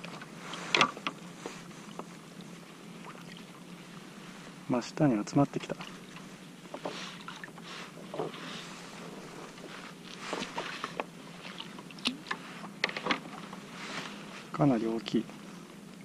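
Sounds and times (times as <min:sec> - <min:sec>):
small water splashes: 0:03.0 - 0:03.6, 0:10.4 - 0:12.4.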